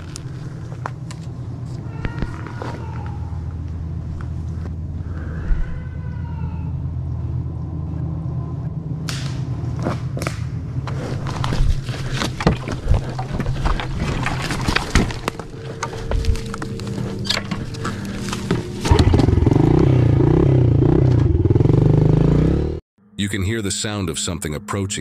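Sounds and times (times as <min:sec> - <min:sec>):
wavering falling animal cry: 0:01.7 - 0:03.6, 0:05.0 - 0:07.3
dirt bike engine idling: 0:06.9 - 0:22.8.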